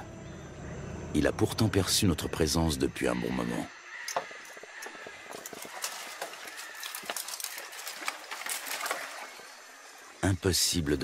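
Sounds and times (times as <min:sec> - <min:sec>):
dry branches rustling and snapping: 0:04.0 - 0:10.2.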